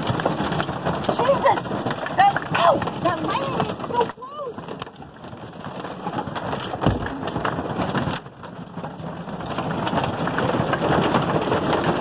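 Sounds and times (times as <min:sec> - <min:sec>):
hail clattering on metal roof: 0:00.0 - 0:12.0.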